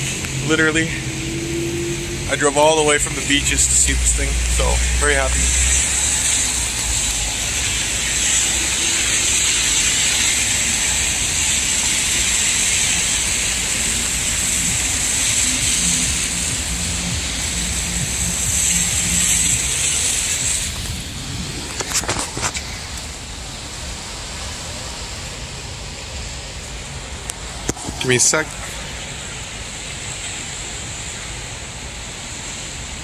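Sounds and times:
low engine hum: 0.0s - 32.2s
traffic hiss: 0.0s - 33.0s.

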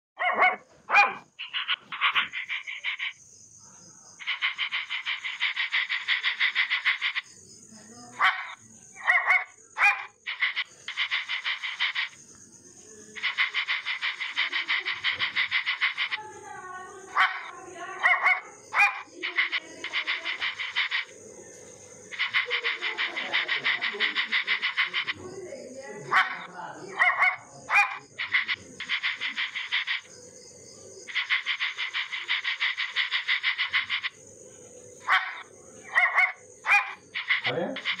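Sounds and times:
small dog yelping: 0.2s - 1.3s, 8.2s - 10.1s, 17.2s - 19.1s, 27.0s - 28.0s, 35.1s - 37.0s
fast even pulsing: 4.2s - 7.3s, 13.2s - 16.4s, 22.1s - 26.5s, 27.8s - 30.1s, 36.7s - 38.0s.

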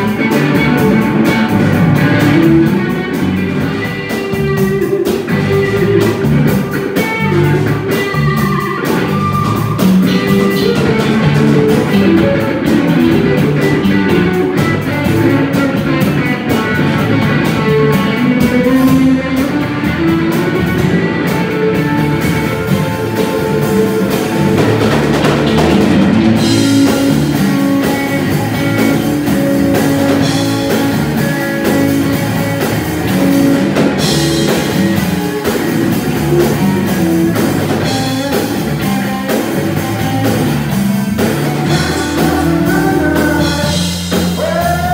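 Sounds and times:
bass guitar: 0.0s - 44.9s
drum kit: 0.0s - 44.9s
electric guitar: 0.0s - 44.9s.

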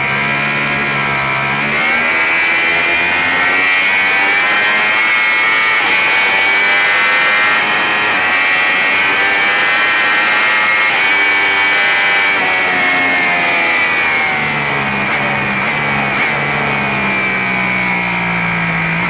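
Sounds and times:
motorcycle engine revving high: 0.0s - 19.0s.

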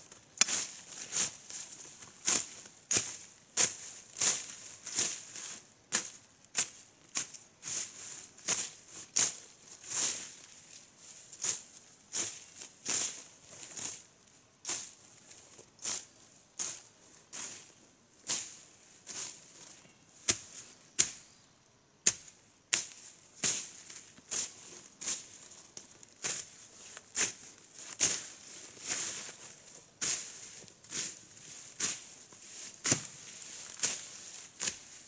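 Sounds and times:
undergrowth rustling and snapping: 0.1s - 1.6s, 31.8s - 35.0s.

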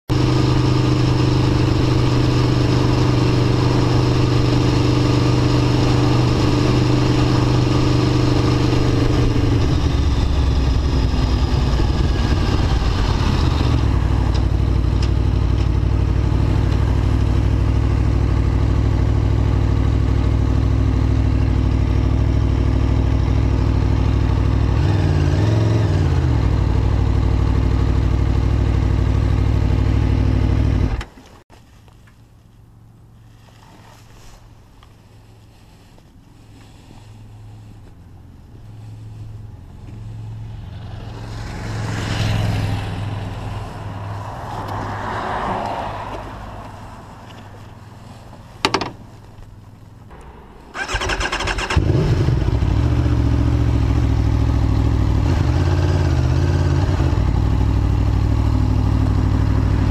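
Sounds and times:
motorcycle engine running: 0.1s - 31.1s, 33.0s - 59.9s.

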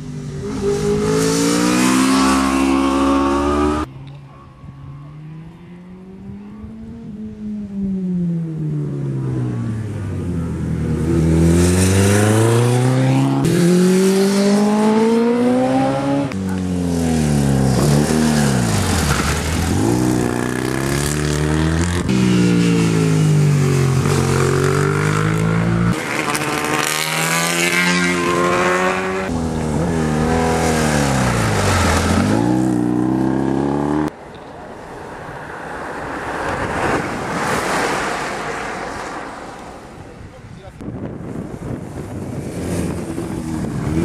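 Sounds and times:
engine and wind noise: 0.0s - 27.6s, 28.3s - 44.0s
racing motorcycle engines revving: 0.0s - 34.2s.

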